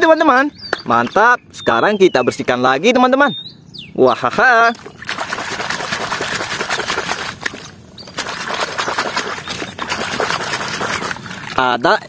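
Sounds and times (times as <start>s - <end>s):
water splashing and sloshing: 4.7s - 12.0s.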